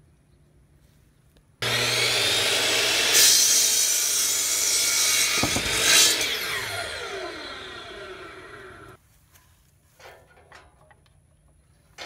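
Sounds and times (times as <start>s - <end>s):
miter saw cutting wood: 1.6s - 9.0s
low thud: 5.4s - 5.9s.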